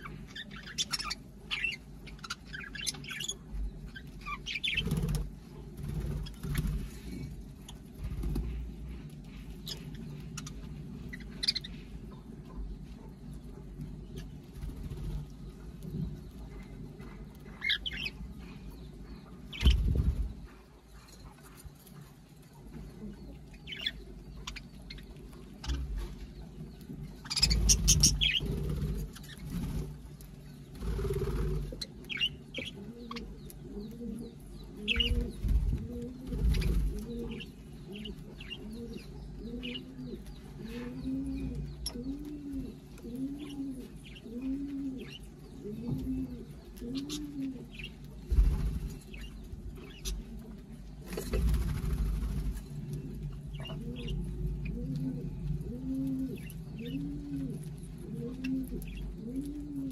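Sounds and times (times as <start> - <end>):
small parrots chirping: 0.0 - 5.2, 9.6 - 11.8, 27.2 - 29.6
dove cooing: 27.3 - 29.9, 30.8 - 50.4, 51.3 - 59.9.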